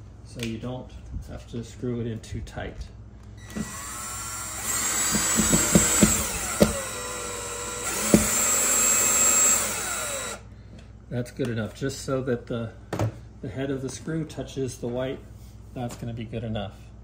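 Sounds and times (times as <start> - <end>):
cordless drill whirring: 3.4 - 10.5.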